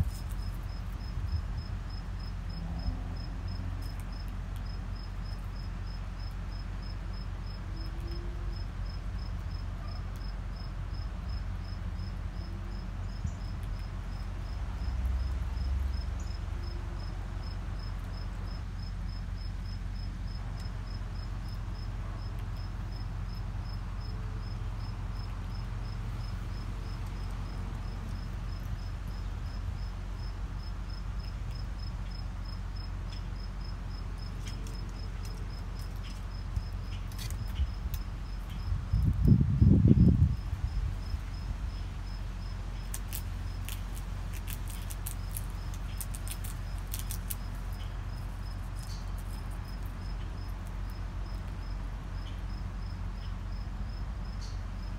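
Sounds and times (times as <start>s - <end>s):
crickets chirping: 0.0s - 54.9s
steady low hum: 0.0s - 54.9s.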